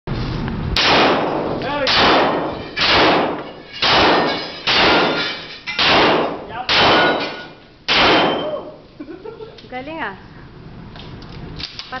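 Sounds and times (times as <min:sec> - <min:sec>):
handgun shots echoing indoors: 0:00.8 - 0:08.8.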